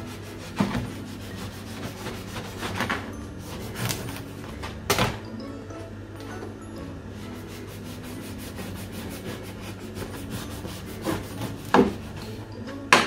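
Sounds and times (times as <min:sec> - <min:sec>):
knife sawing through bread: 0:00.0 - 0:04.4, 0:07.3 - 0:12.4.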